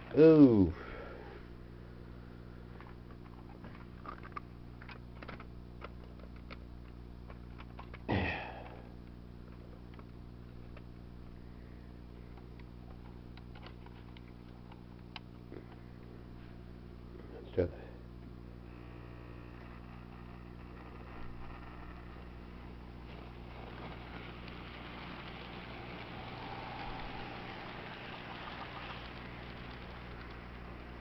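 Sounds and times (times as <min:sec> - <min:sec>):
low electrical hum: 0:00.0 - 0:31.0
faint clicks: 0:26.8 - 0:30.6.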